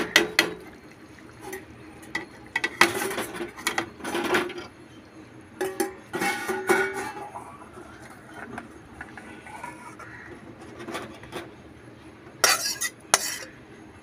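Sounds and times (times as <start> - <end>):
metal spatula scraping a pan: 5.7 - 7.4, 8.0 - 11.5, 12.4 - 13.6.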